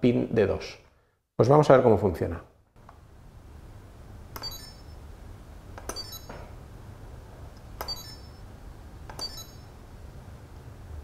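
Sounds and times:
button click: 4.4s - 4.8s
high electronic beeps: 4.4s - 5.0s, 5.9s - 6.4s, 7.8s - 8.5s, 9.2s - 9.7s.

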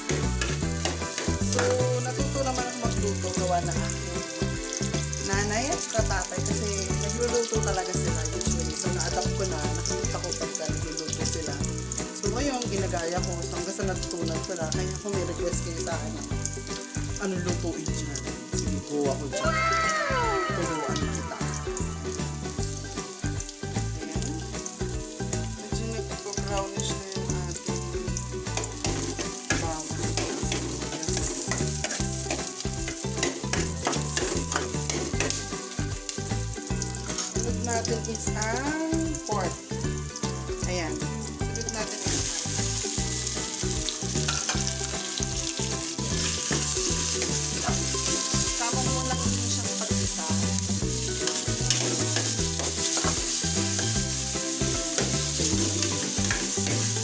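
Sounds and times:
meat sizzling in a pot: 0.0s - 57.0s.

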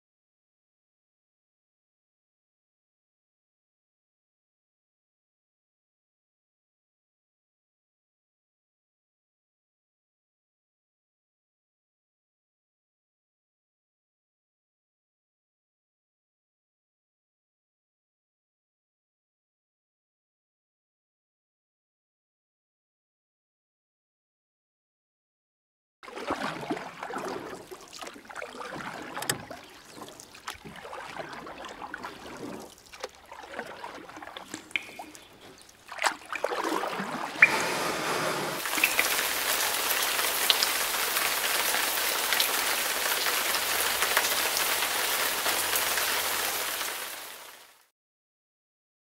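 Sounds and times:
raindrop ticks: 34.5s - 35.3s, 38.7s - 41.3s
rain pattering: 38.6s - 47.8s.

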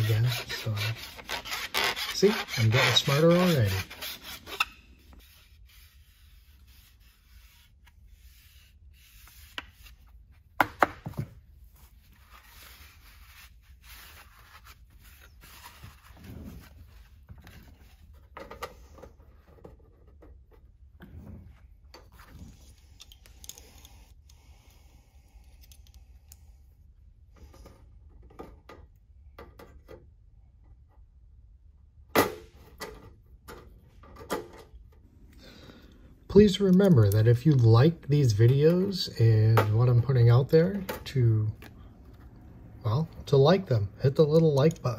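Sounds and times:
plastic rubbing and scraping on metal: 0.0s - 10.6s.

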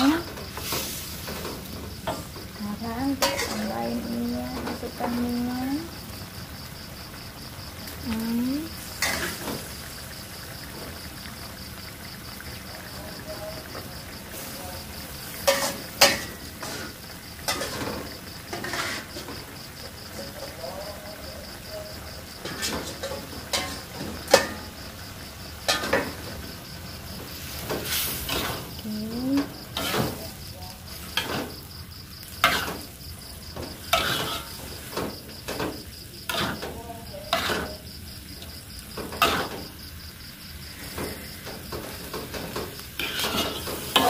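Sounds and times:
oil sizzling: 0.0s - 44.0s
metal spatula scraping a wok: 0.5s - 2.3s, 3.1s - 3.7s, 8.9s - 9.6s, 15.2s - 19.4s, 22.4s - 24.8s, 27.3s - 28.8s, 29.7s - 30.3s, 32.2s - 33.0s, 33.6s - 37.9s, 39.0s - 39.7s, 40.7s - 44.0s
noodles splashing into hot oil: 22.1s - 36.7s, 40.6s - 44.0s.

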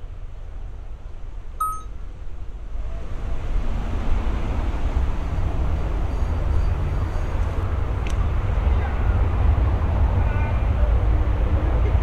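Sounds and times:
short high beep: 1.6s - 1.9s.

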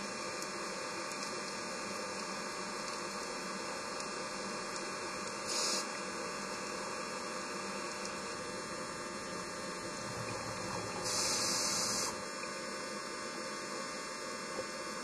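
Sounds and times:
camera electrical hum and hiss: 0.0s - 15.0s
high hiss: 9.9s - 12.2s.

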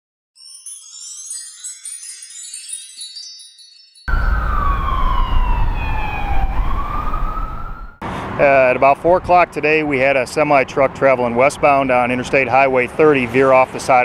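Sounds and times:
chiming jingle: 0.4s - 4.4s
emergency vehicle wail siren: 4.1s - 8.4s.

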